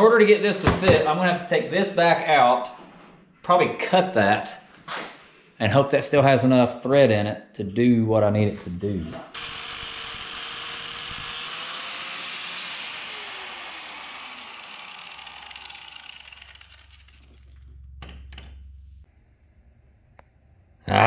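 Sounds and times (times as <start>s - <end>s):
knocks: 0.6s - 1.1s
power tool grinding steel: 9.3s - 18.0s
low hum: 13.6s - 21.0s.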